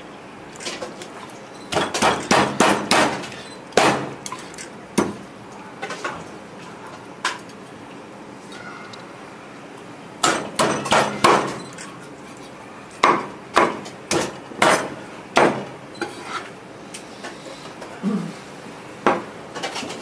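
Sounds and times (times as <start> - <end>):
cleaver chopping on wooden board: 1.8 - 3.2, 13.0 - 15.7.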